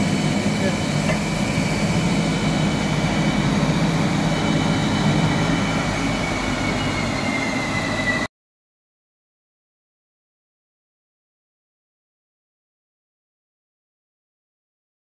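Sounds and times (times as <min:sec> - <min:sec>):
belt sander humming and whining: 0:00.0 - 0:08.3.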